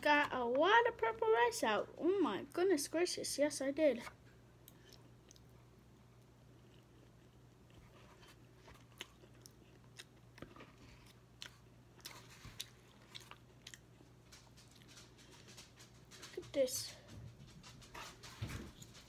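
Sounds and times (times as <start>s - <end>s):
low steady hum: 0.0s - 19.0s
chewing food: 4.6s - 16.5s.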